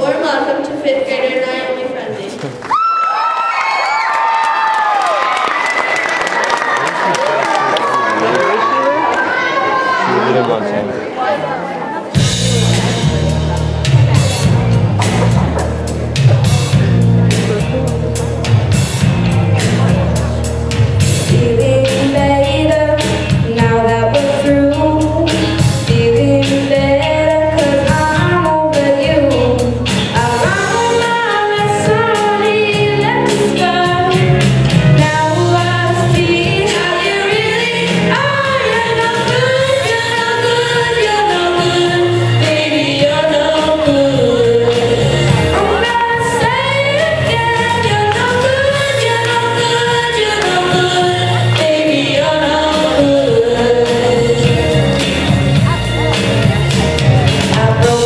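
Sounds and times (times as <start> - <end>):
backing music with drum beat: 12.1 - 58.0
girl singing into microphone: 21.3 - 54.7, 57.5 - 58.0.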